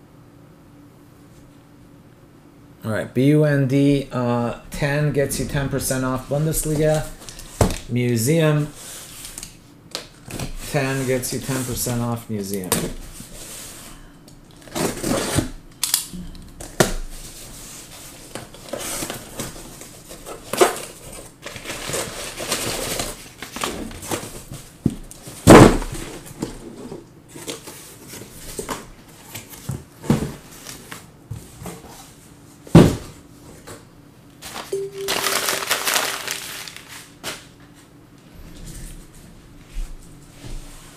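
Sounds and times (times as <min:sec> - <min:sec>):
plastic wrapping crinkling and tearing: 0:34.5 - 0:37.4.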